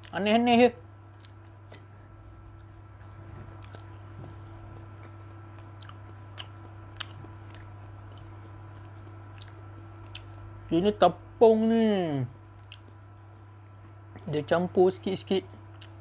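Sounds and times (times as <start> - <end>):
steady low hum: 0.0 - 16.0
person chewing: 1.1 - 10.7, 12.5 - 14.4, 15.5 - 16.0
wet mouth clicks: 3.0 - 10.4, 12.6 - 13.0.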